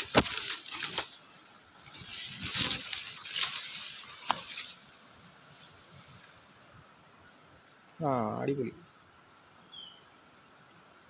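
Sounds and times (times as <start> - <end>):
twigs crackling: 0.0 - 6.7
leaves and branches rustling: 0.0 - 10.7.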